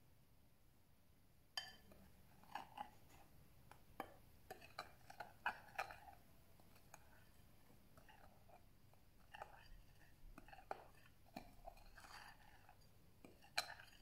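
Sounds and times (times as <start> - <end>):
spoon clinking on glass bowl: 1.6 - 1.9, 4.0 - 7.2, 10.4 - 14.0
soft scraping in bowl: 1.8 - 3.4, 4.0 - 14.0.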